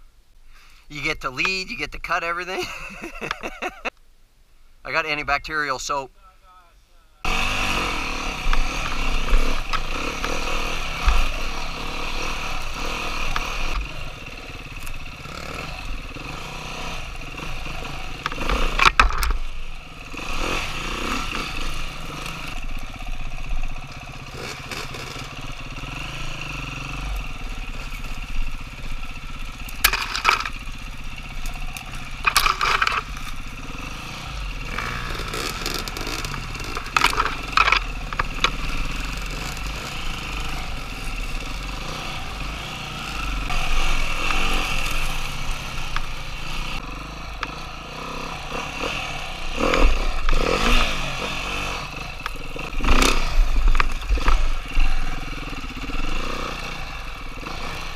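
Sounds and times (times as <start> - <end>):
dirt bike engine running: 7.3 - 57.9
knocks and rattles: 18.2 - 19.5, 29.8 - 30.6, 32.2 - 33.2, 34.8 - 38.6.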